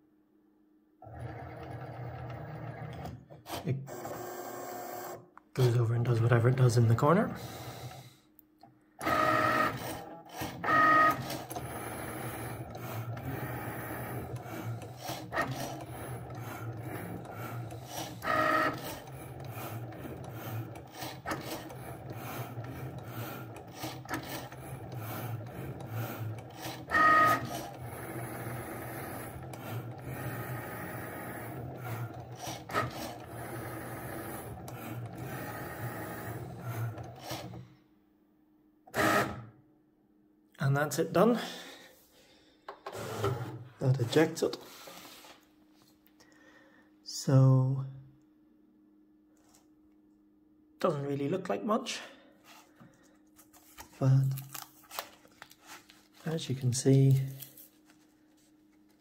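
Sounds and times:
cutting machine motors whirring: 1.0s - 5.2s, 9.0s - 37.6s.

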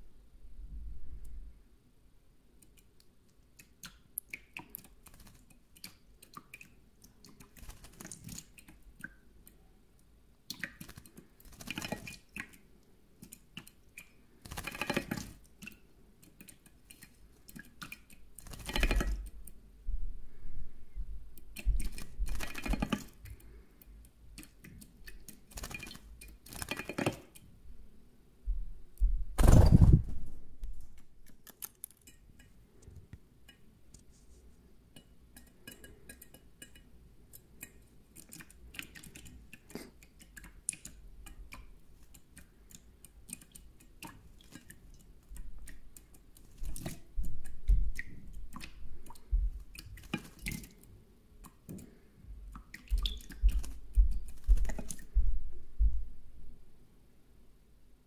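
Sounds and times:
bird splashing water: 3.8s - 9.1s, 10.5s - 12.6s, 13.2s - 19.3s, 21.5s - 23.2s, 24.4s - 27.3s, 38.1s - 51.7s, 52.5s - 55.1s.

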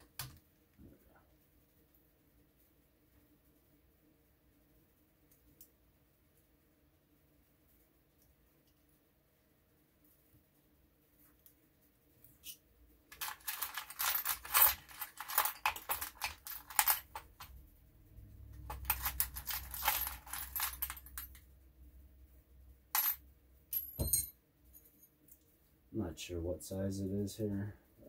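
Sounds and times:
metal hex keys clinking: 12.4s - 17.6s, 18.5s - 21.4s, 23.0s - 25.1s.

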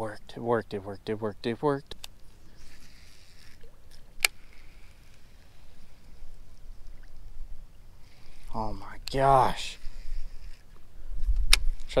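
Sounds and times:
fishing reel whirring: 1.8s - 12.0s
sharp click: 11.4s - 11.9s.

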